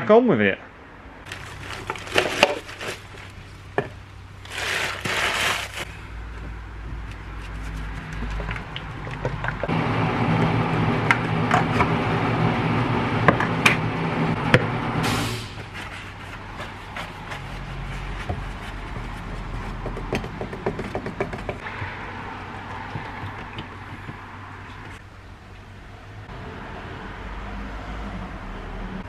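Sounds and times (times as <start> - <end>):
droning hum: 9.7 - 15.0
stick stirring paint in plastic cup: 15.8 - 21.6.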